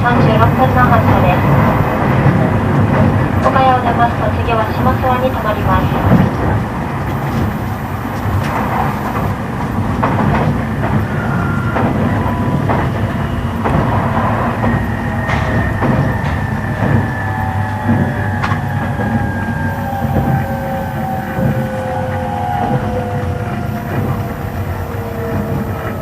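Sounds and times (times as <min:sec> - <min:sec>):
train wheels rumbling on rail: 0:00.0 - 0:26.0
whining traction motor tones: 0:00.0 - 0:26.0.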